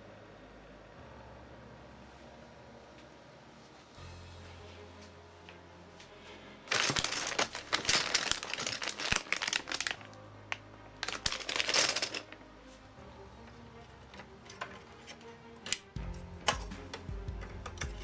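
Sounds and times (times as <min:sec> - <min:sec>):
plastic bags crinkling: 0:06.7 - 0:12.4.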